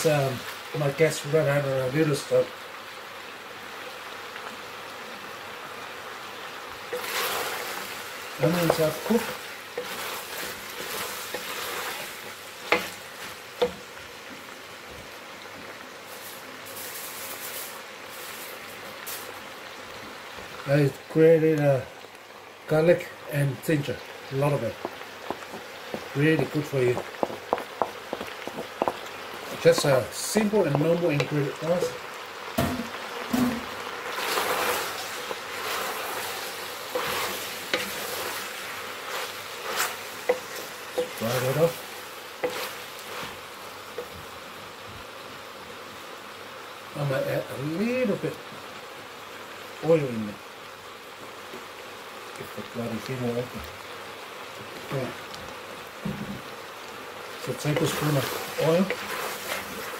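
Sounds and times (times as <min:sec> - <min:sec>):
meat and onions sizzling in a pot: 0:00.0 - 0:59.9
wooden spoon stirring: 0:06.9 - 0:13.9, 0:24.3 - 0:32.2, 0:34.0 - 0:44.2, 0:57.3 - 0:59.9
wooden spoon knocking on pot: 0:24.8 - 0:30.0.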